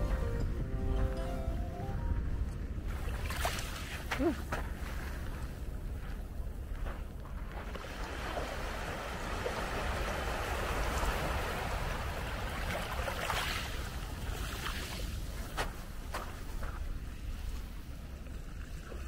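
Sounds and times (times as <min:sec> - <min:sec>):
waves lapping on pebble shore: 0:07.6 - 0:17.5.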